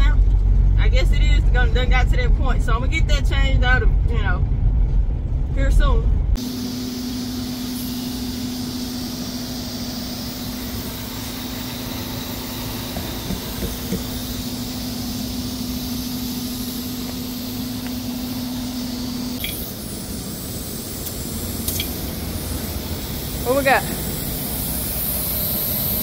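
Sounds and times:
steady machine hum: 0.0 - 26.0
compressed air hissing into tire: 6.4 - 26.0
sharp air hiss: 6.4 - 26.0.

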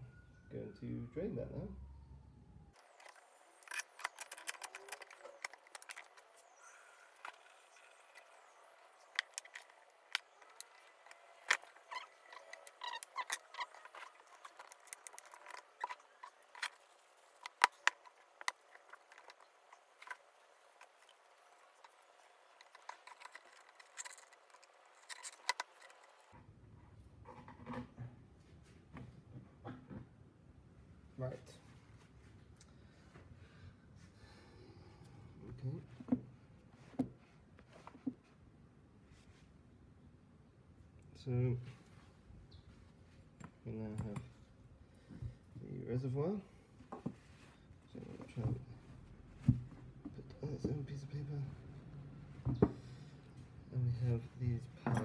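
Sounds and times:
small metal parts clinking: 2.9 - 6.3.

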